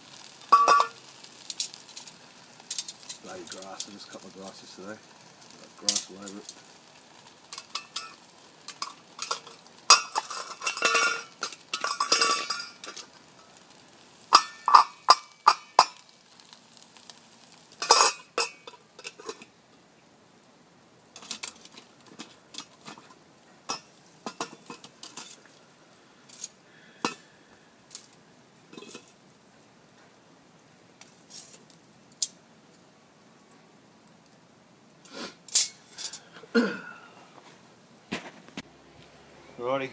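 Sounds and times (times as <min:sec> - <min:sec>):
metal tongs clinking on a tin: 0:00.5 - 0:02.1, 0:07.5 - 0:13.1, 0:14.3 - 0:16.0, 0:17.8 - 0:19.5, 0:21.2 - 0:23.1.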